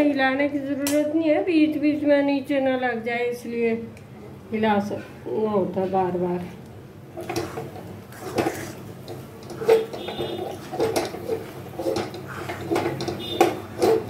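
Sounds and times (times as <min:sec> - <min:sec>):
spoon scraping metal pan: 0:07.2 - 0:14.0.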